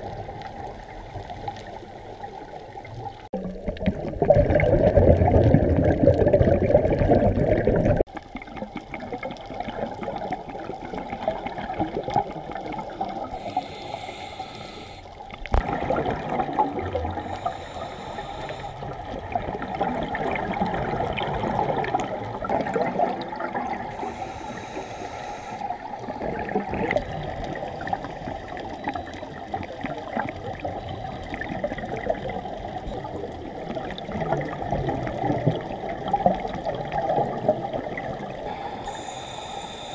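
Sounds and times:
underwater rushing water wash: 0:00.0 - 0:39.9
scuba regulator hissing bursts: 0:13.4 - 0:15.1, 0:17.3 - 0:18.8, 0:23.9 - 0:25.7, 0:38.6 - 0:39.9.

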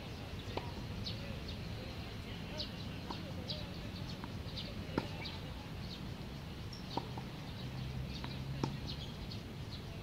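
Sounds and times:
birds chirping: 0:00.0 - 0:10.0
tennis racket hitting ball: 0:04.9 - 0:05.2, 0:08.1 - 0:08.9.

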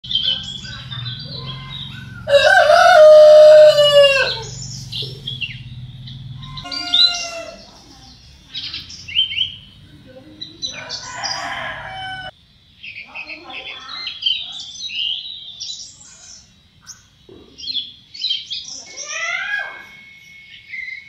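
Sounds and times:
small birds chirping: 0:00.0 - 0:21.0
rooster crowing: 0:01.2 - 0:05.5, 0:06.1 - 0:07.8, 0:10.6 - 0:12.4.

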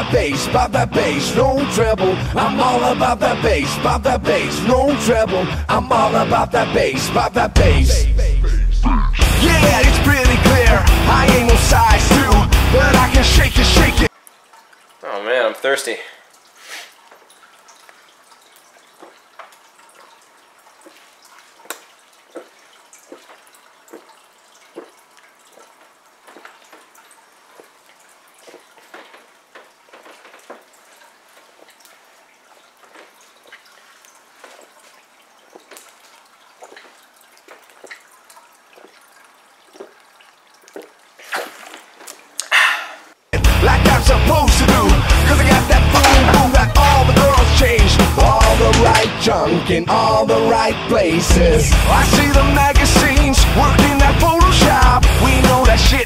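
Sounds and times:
loud rock music: 0:00.0 - 0:14.1, 0:43.4 - 0:56.0
person gulping: 0:08.3 - 0:09.4, 0:40.6 - 0:43.2
soda glugging in plastic bottle: 0:16.3 - 0:43.2
loud breathy gasp: 0:42.4 - 0:43.1.

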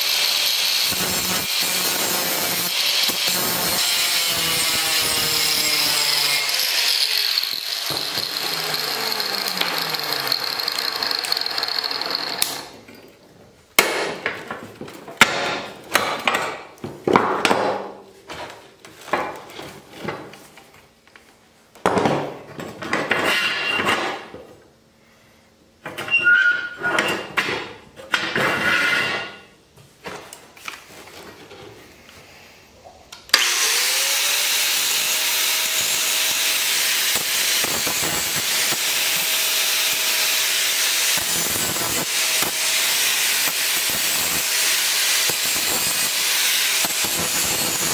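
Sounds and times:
angle grinder cutting steel: 0:00.0 - 0:12.7, 0:33.3 - 0:47.9.

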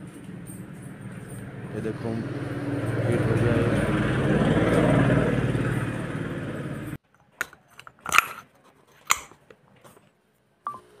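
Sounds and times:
vehicle engine noise: 0:00.0 - 0:07.0.

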